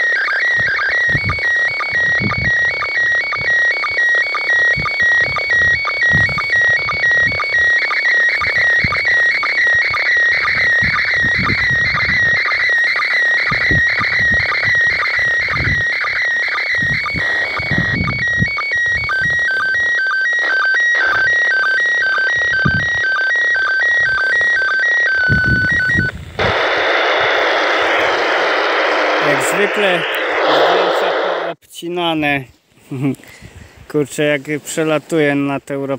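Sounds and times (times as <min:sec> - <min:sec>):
electronic tones alternating pitch: 0:00.0 - 0:31.6
radio static hiss: 0:00.0 - 0:35.9
wind buffeting microphone: 0:00.6 - 0:03.5, 0:04.7 - 0:07.7, 0:09.8 - 0:12.4, 0:13.5 - 0:15.9, 0:16.7 - 0:19.4, 0:22.3 - 0:23.0, 0:25.2 - 0:31.3.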